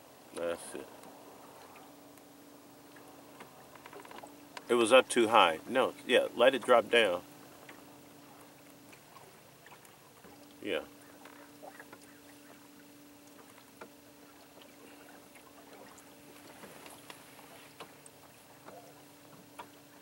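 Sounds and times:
water splashing against hull: 2.8s - 20.0s.

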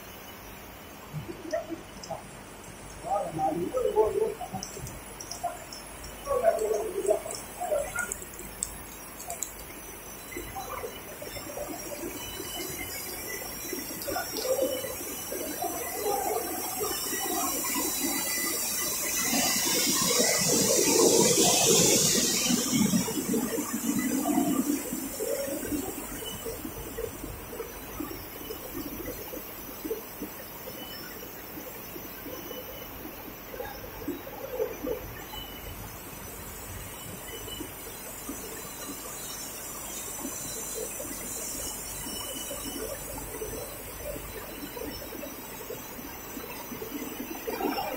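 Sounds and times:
rushing hissing machinery: 12.1s - 27.3s.

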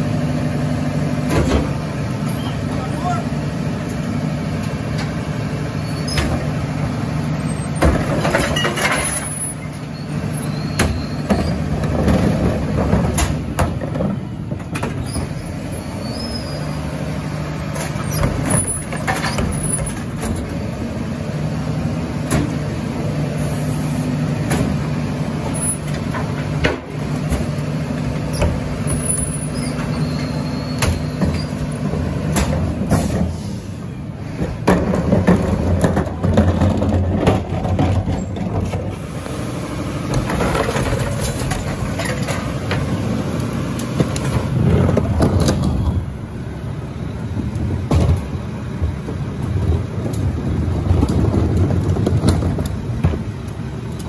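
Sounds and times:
garbage truck engine running: 0.0s - 54.0s
clanks and knocks: 34.4s - 38.9s.

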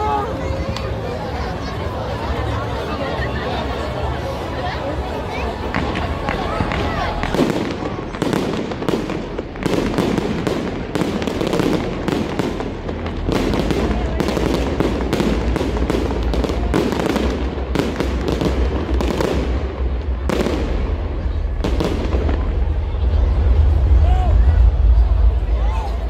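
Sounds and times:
fireworks bangs: 5.5s - 26.0s.

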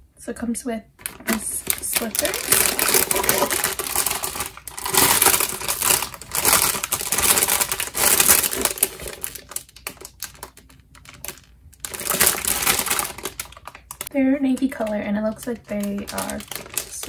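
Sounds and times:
plastic bag crinkling: 1.0s - 17.0s.

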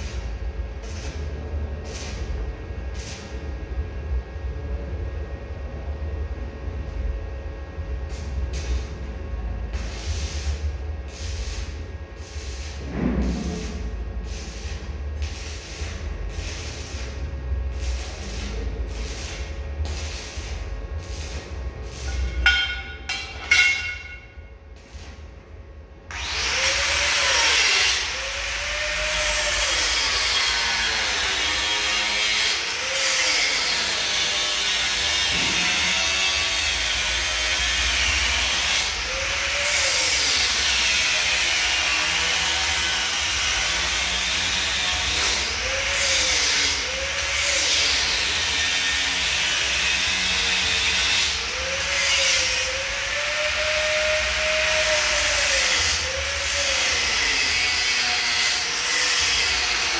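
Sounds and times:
angle grinder on metal: 26.1s - 59.9s.

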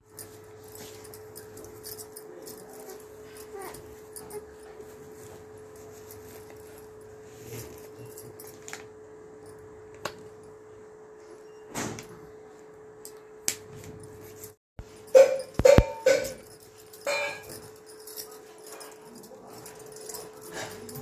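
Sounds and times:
glass bangles clinking: 15.1s - 21.0s.

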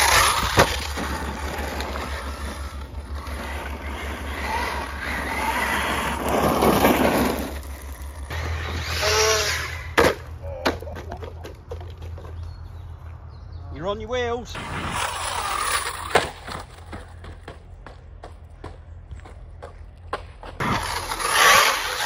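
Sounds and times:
car tumbling and clattering: 0.0s - 8.8s
motor whining: 0.0s - 10.0s, 20.6s - 22.0s
radio-controlled car on gravel: 0.0s - 10.4s, 14.4s - 17.6s, 20.6s - 22.0s.

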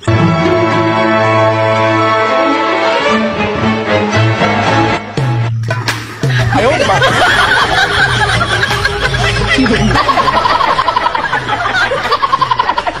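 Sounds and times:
music: 0.0s - 13.0s
person laughing: 6.2s - 13.0s.

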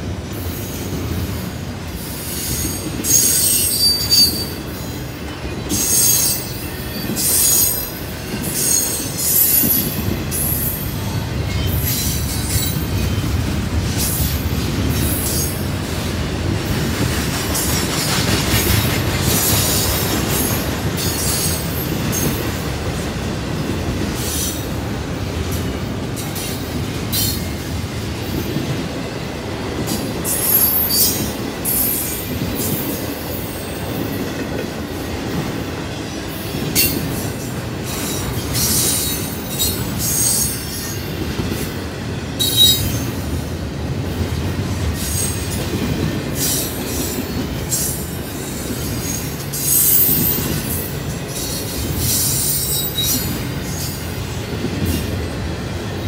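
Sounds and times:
train wheels rumbling on rail: 0.0s - 56.0s
wheel squeals and screeches: 2.4s - 4.6s.

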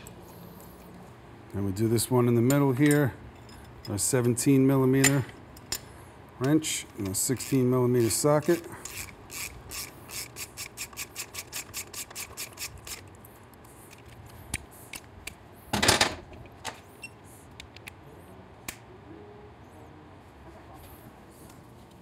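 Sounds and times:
metal tools clunk: 2.4s - 4.2s
socket ratchet clicking: 7.0s - 13.1s.

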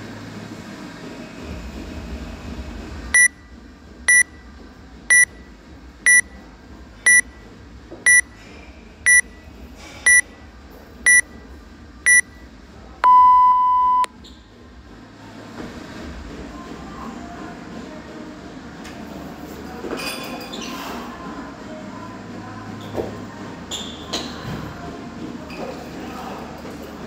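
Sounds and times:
long low beep: 3.2s - 3.4s, 4.1s - 4.4s, 5.1s - 5.4s, 6.1s - 6.4s, 7.1s - 7.4s, 8.1s - 8.3s, 9.1s - 9.3s, 10.1s - 10.3s, 11.1s - 11.3s, 12.1s - 12.3s, 13.0s - 14.1s
short high beeps: 3.2s - 3.4s, 4.1s - 4.3s, 5.1s - 5.4s, 6.1s - 6.3s, 7.1s - 7.3s, 8.1s - 8.3s, 9.1s - 9.3s, 10.1s - 10.3s, 11.1s - 11.3s, 12.1s - 12.3s, 13.0s - 14.1s.

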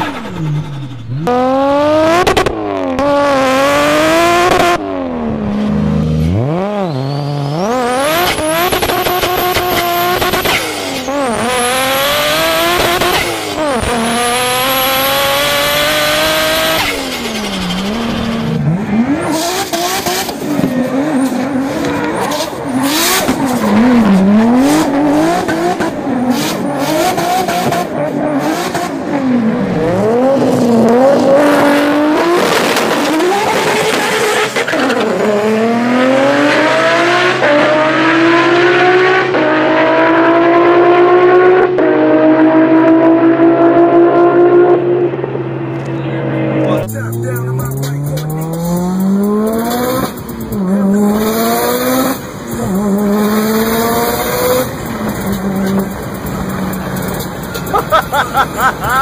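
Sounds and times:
car engine revving: 0.0s - 59.0s
tyre squeal: 6.7s - 11.4s.

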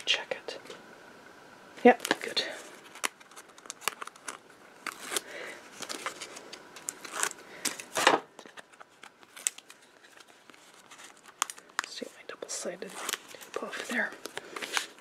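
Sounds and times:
tape backing liners peeling: 2.0s - 12.0s
paper rustling: 2.0s - 12.2s, 12.8s - 15.0s.

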